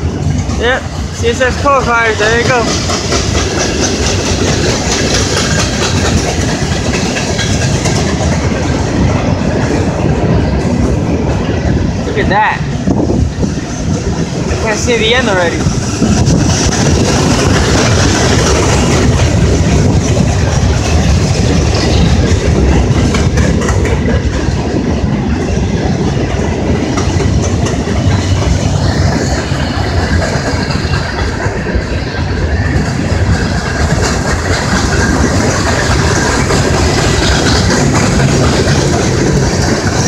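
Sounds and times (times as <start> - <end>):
wheels clicking over rail joints: 0.0 - 12.1, 12.8 - 40.0
train rumbling past: 0.0 - 40.0.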